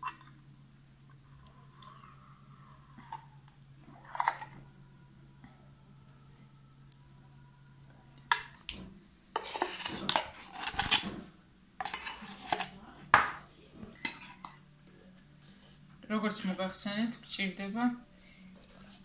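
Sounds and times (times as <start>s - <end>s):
metal clinking and scraping on tin can: 9.4s - 11.0s, 11.8s - 12.7s.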